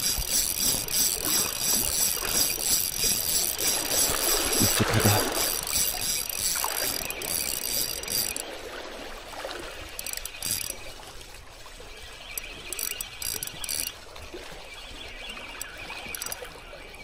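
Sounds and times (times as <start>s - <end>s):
fishing reel gears whirring: 0.0s - 8.5s, 9.9s - 10.8s, 12.2s - 14.0s, 15.5s - 16.4s.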